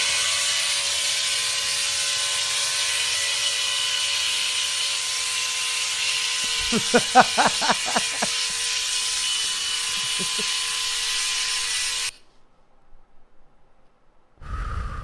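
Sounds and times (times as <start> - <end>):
hair clippers buzzing: 5.7 - 12.2
man laughing: 6.4 - 8.6, 9.8 - 10.6
low rumbling noise: 14.4 - 15.0.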